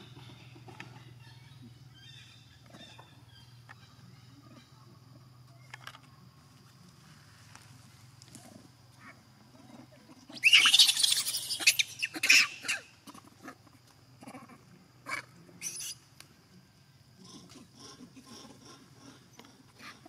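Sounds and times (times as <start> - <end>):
monkey screaming: 10.3 - 13.3, 15.1 - 16.0
monkey squeaks: 10.4 - 12.8, 15.6 - 16.0.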